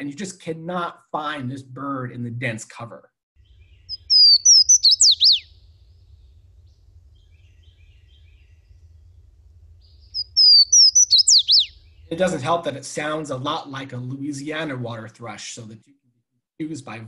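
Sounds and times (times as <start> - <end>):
bird singing clear whistles: 3.4 - 6.3, 9.8 - 12.1.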